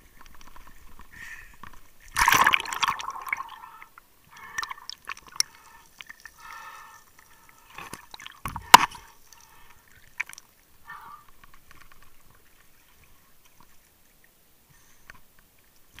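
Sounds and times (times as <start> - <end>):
underwater bubbling and gurgling: 2.0 - 13.1.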